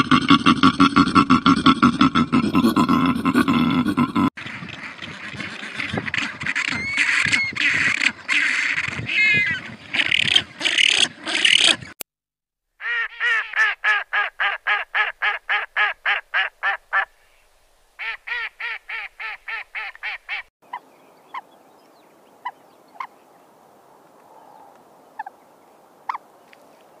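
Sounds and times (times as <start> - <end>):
duck quacking rapidly: 2.3 - 11.9, 12.8 - 17.1.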